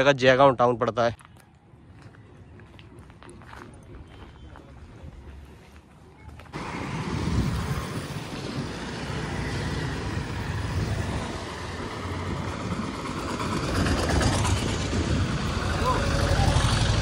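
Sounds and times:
steady road hum: 1.2 - 17.0
auto-rickshaw engine passing: 6.6 - 17.0
motorcycle engine passing: 6.6 - 17.0.

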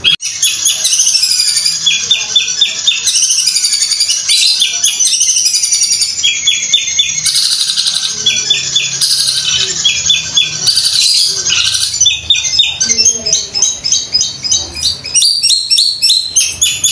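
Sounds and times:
bird's rapid high chatter: 0.0 - 16.9.

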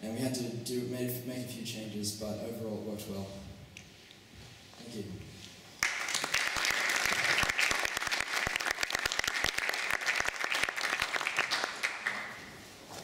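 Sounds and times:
audience applauding: 5.8 - 12.5.

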